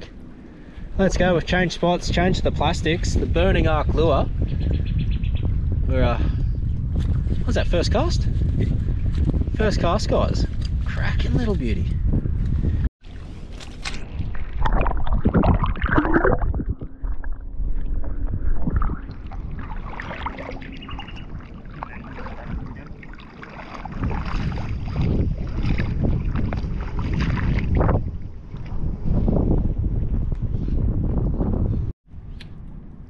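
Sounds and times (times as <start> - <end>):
wind rumbling on microphone: 0.0 - 33.0
water lapping and sloshing: 13.0 - 29.2.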